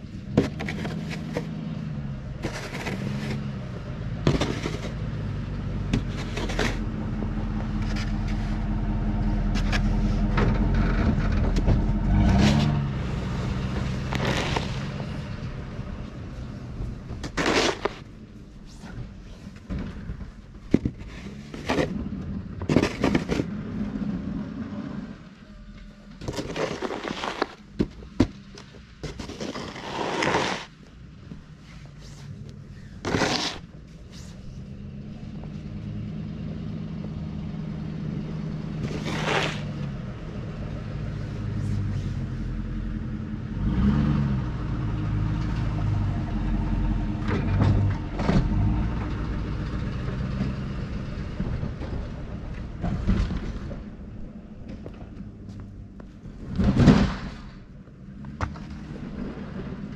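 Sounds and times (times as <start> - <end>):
truck engine running: 0.0 - 59.9.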